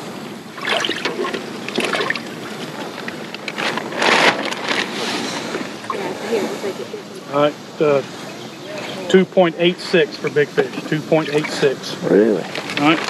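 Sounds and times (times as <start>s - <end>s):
water sloshing: 0.0s - 13.0s
water splash: 0.4s - 6.6s
bag rustling: 1.8s - 6.7s, 12.4s - 13.0s.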